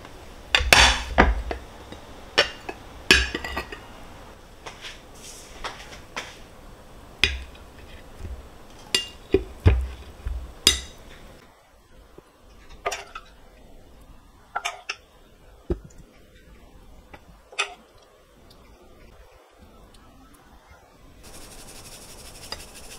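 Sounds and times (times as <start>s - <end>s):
dishes and glassware clinking: 10.7s - 11.0s.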